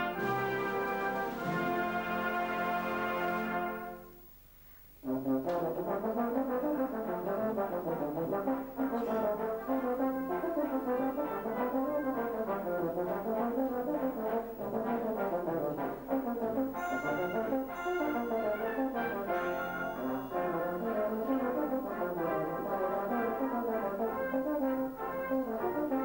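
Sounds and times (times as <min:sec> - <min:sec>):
brass band playing: 0:00.0 - 0:04.3, 0:05.0 - 0:26.0
euphonium solo: 0:00.0 - 0:04.3, 0:13.6 - 0:26.0.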